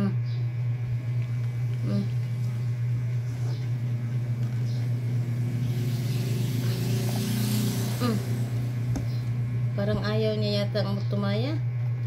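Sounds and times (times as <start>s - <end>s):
steady low hum: 0.0s - 12.0s
rushing noise: 1.0s - 10.2s.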